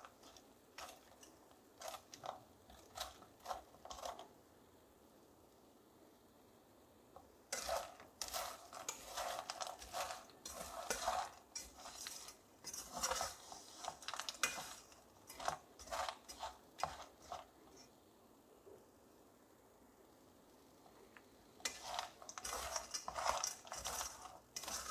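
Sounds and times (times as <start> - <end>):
wooden spatula scraping a pot: 0.0 - 4.3, 7.5 - 18.0, 21.6 - 24.9.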